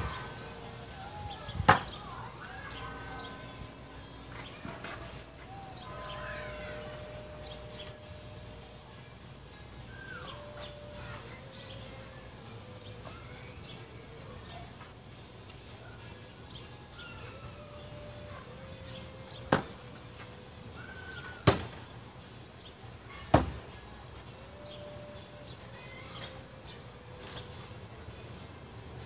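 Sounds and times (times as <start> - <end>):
faint bird calls: 24.6 - 27.8.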